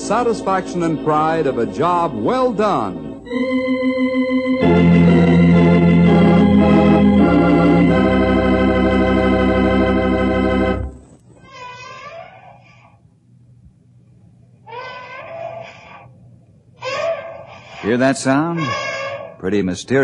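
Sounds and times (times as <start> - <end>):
organ chords: 0.0 - 11.2.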